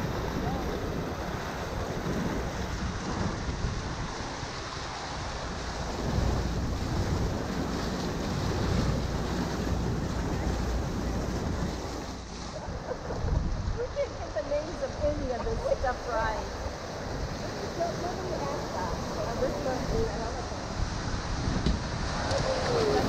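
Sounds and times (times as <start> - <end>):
river water rushing and splashing: 0.0 - 23.0
wind buffeting microphone: 0.0 - 23.0.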